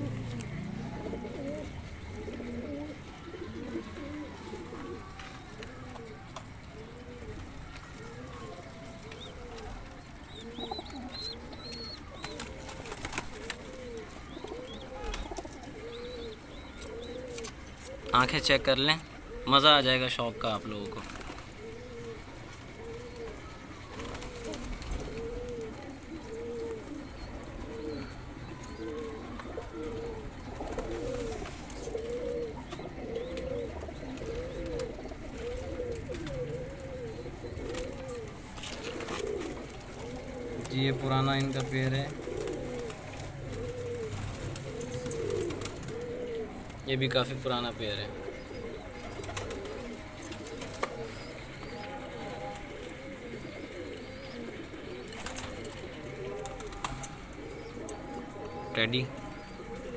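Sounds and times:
pigeons cooing: 0.0 - 59.9.

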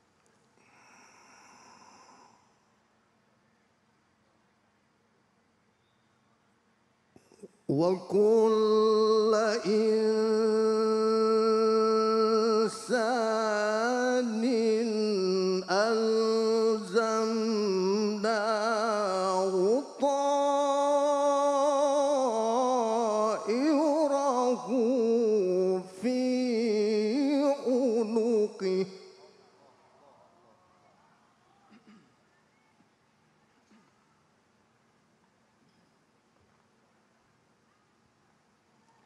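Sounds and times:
man chanting through microphone: 7.3 - 30.7.

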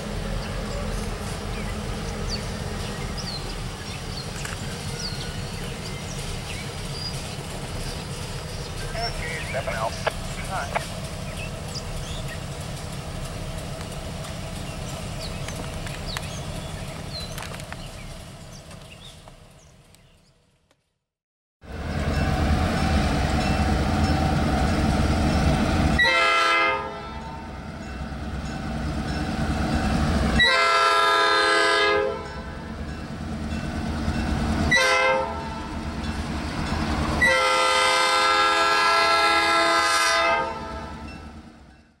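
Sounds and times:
train rumbling: 0.0 - 20.5, 21.6 - 42.0
locomotive air horn blasts: 26.0 - 27.4, 30.4 - 32.4, 34.7 - 35.7, 37.2 - 41.0.

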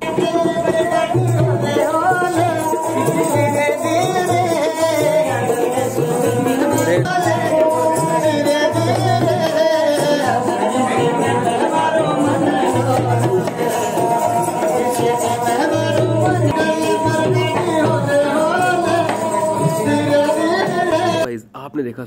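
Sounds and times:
hand drum beating: 0.0 - 21.2
person singing: 0.0 - 21.3.

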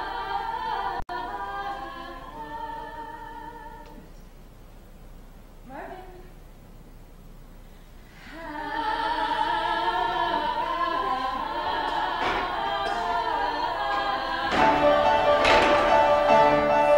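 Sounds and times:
voices singing in harmony: 0.0 - 4.2, 8.2 - 16.9.

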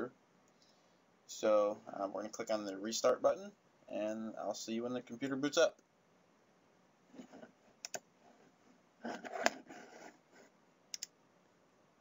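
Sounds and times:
computer mouse clicks: 7.8 - 8.1, 10.9 - 11.2.

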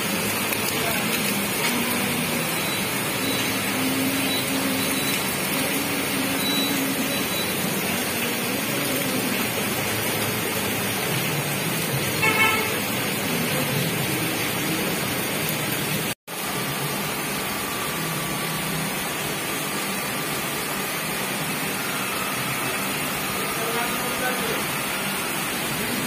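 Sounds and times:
heavy rain pouring: 0.0 - 26.0
vehicle horn toot: 12.2 - 12.9.

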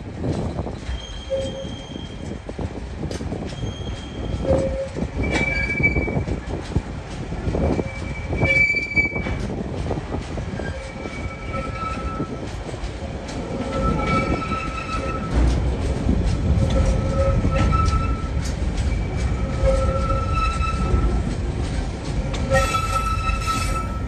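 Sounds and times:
freight train wheels rumbling: 0.0 - 24.0
high-pitched wheel squeals: 22.4 - 24.0.

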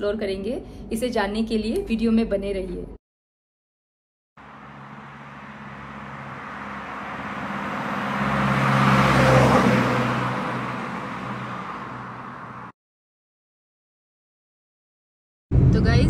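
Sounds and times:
car driving past: 4.4 - 12.7.

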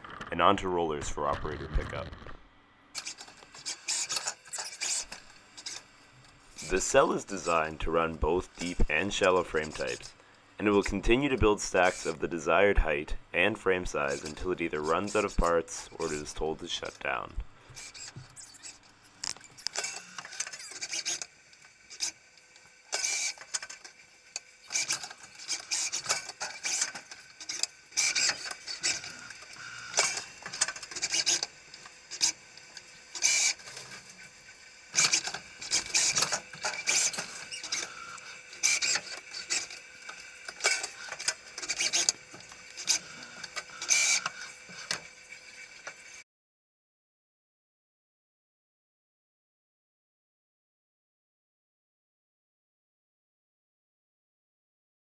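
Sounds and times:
machinery clicking and clattering: 24.7 - 34.2, 35.0 - 45.1.

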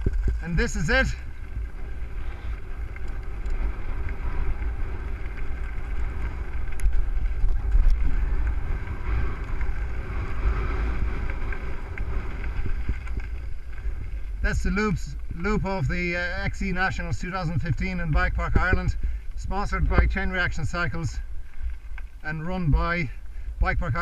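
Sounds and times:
sharp clicks from bike: 0.0 - 15.5
tyres crunching over gravel: 0.0 - 24.0
wind buffeting microphone: 0.0 - 24.0.

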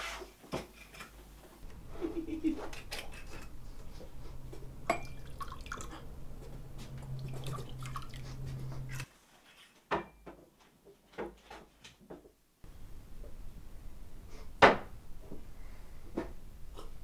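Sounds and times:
low steady hum: 1.6 - 9.1
glass tumblers clinking: 4.8 - 6.1
liquid pouring: 4.8 - 6.2, 7.0 - 9.1.

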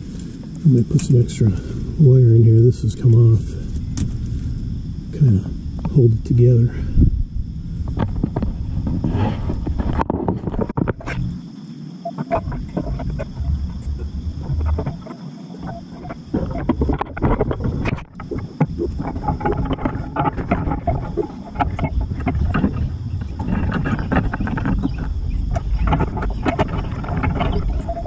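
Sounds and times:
leaves rustling and crackling: 0.0 - 4.6
wind rumble on microphone: 0.0 - 28.0.

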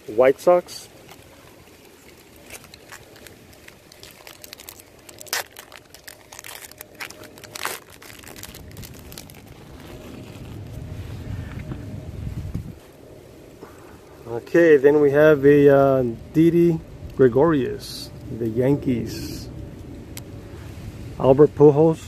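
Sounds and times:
wrapper crinkling and tearing: 0.9 - 11.0.

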